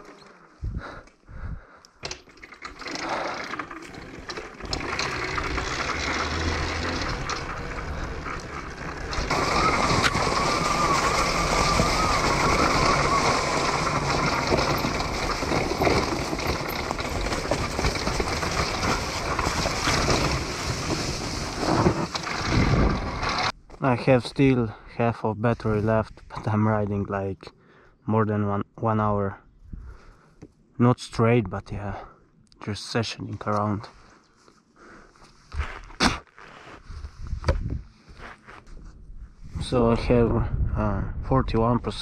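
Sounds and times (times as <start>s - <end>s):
wind on the microphone: 0.6s - 1.6s, 36.9s - 37.9s, 39.0s - 42.0s
tyre and chassis noise: 2.0s - 24.2s.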